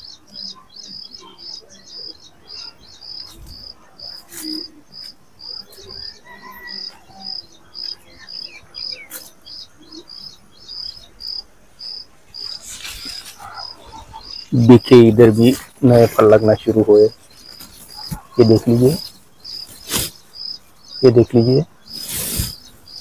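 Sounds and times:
high-pitched chirping: 0:00.0 - 0:23.0.

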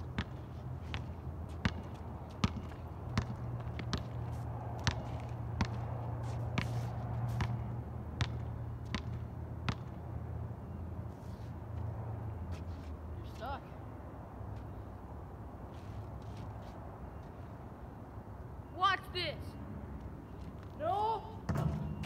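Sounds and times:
basketball dribbling on asphalt: 0:00.0 - 0:10.0.

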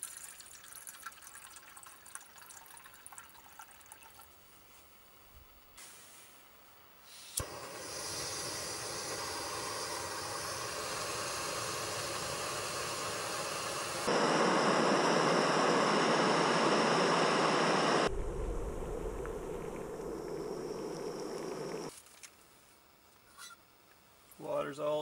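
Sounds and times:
gas burner hissing: 0:05.8 - 0:21.9
water boiling hard: 0:07.4 - 0:21.9.

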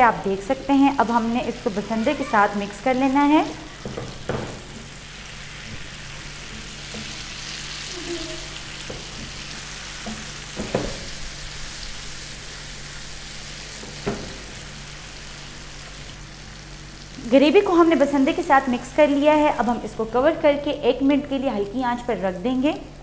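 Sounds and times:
food sizzling in hot oil: 0:00.0 - 0:20.2
spatula knocking against a pan: 0:03.8 - 0:04.9.

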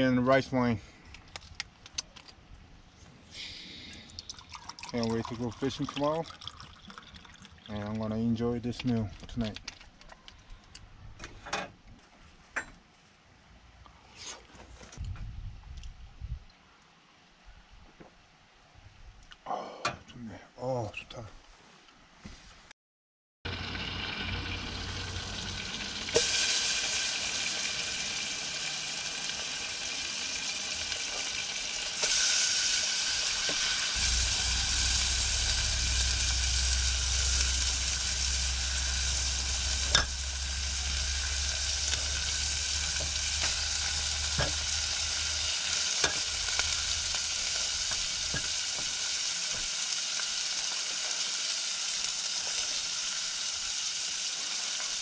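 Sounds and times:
meat sizzling in pan: 0:23.5 - 0:55.0.

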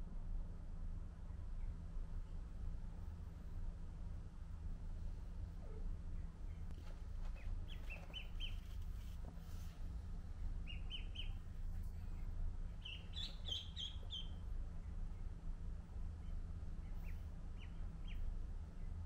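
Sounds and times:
steady low hum: 0:00.0 - 0:19.0
ducklings peeping: 0:05.7 - 0:09.7, 0:10.4 - 0:15.4, 0:16.2 - 0:19.0.

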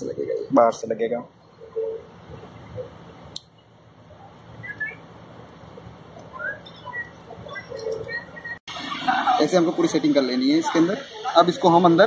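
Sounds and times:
faint bird chirps: 0:01.4 - 0:05.1, 0:06.2 - 0:08.6.

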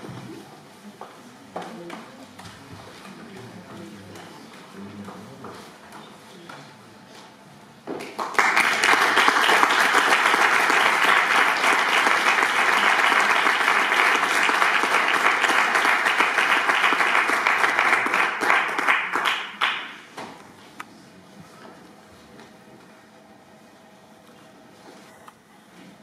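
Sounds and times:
audience applauding: 0:08.0 - 0:20.1.

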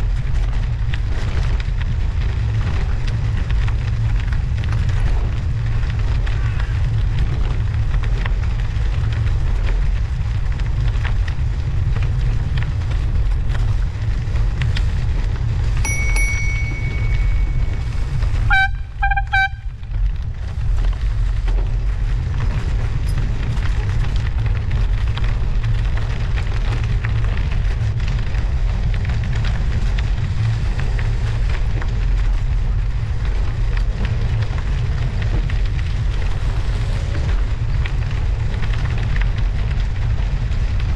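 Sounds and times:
bicycle tyre road noise: 0:00.0 - 0:40.9
wind rumble: 0:00.0 - 0:40.9
steady high tone: 0:15.9 - 0:19.3.

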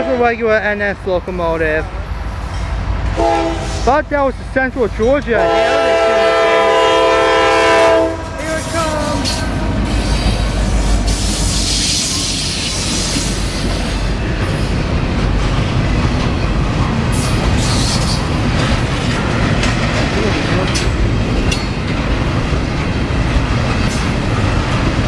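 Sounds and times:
train rumbling past: 0:00.0 - 0:25.0
locomotive air horn: 0:03.2 - 0:03.9, 0:05.4 - 0:10.3
wheels clicking over rail joints: 0:09.0 - 0:25.0.

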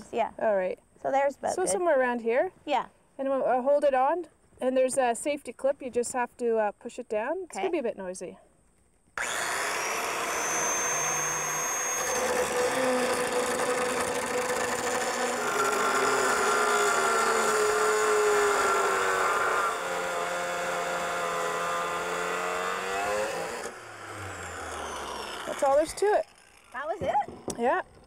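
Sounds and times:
angle grinder cutting steel: 0:09.2 - 0:28.0.

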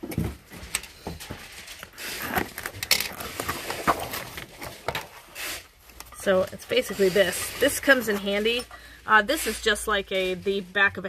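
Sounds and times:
cardboard rustling and tearing: 0:01.3 - 0:05.8.

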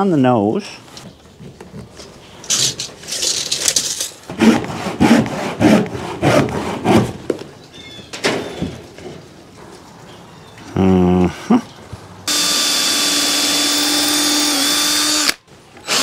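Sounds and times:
handsaw cutting wood: 0:04.3 - 0:07.2, 0:12.3 - 0:16.0.

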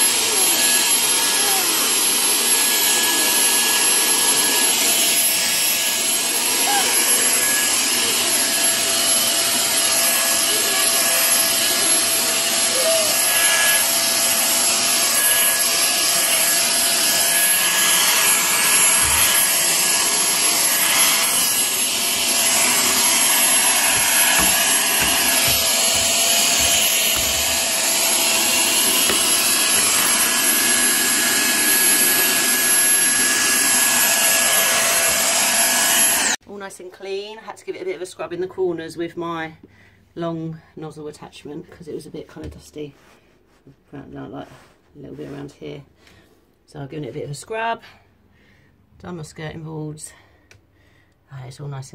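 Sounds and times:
vacuum cleaner running: 0:00.0 - 0:36.4.

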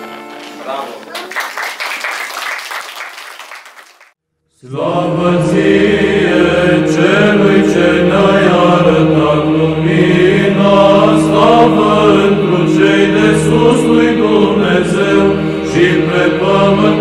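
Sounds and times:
applause: 0:00.4 - 0:04.2
choir chanting: 0:04.6 - 0:17.0.

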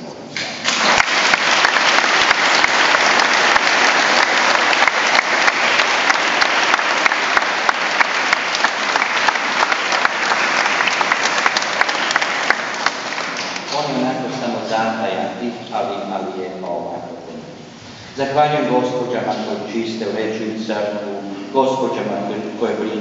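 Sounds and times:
congregation applauding: 0:00.4 - 0:14.0.

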